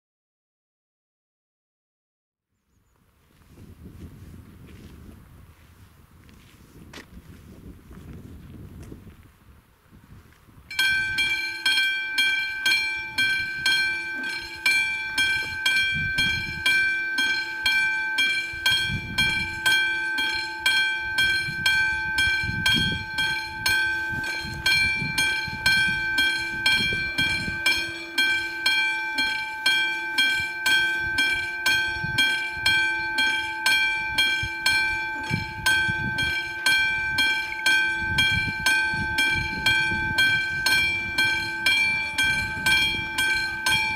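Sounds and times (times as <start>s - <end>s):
level crossing electric bell ringing: 10.7s - 43.9s.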